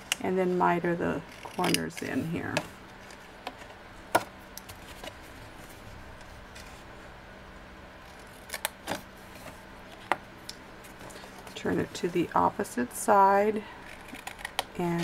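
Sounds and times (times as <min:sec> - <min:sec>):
scissors snipping cardstock: 0:01.3 - 0:02.3.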